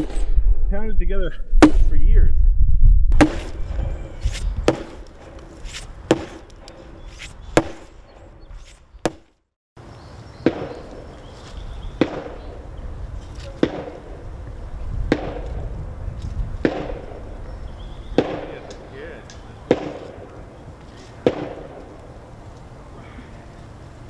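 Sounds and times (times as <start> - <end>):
sledgehammer pounding log: 3.2 - 3.7, 4.3 - 6.9, 7.6 - 8.0, 9.0 - 9.4, 15.1 - 15.6, 16.6 - 17.2.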